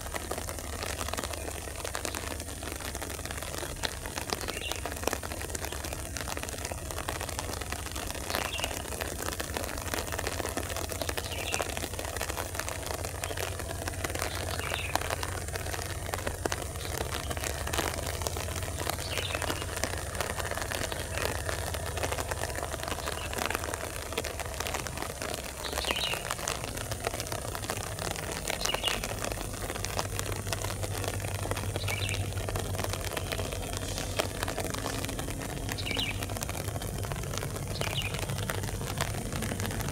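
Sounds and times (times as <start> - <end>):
steady hiss: 0.0 - 39.9
bird chirps: 25.6 - 26.3, 28.6 - 29.1, 31.8 - 32.2, 35.7 - 36.3, 37.7 - 38.3.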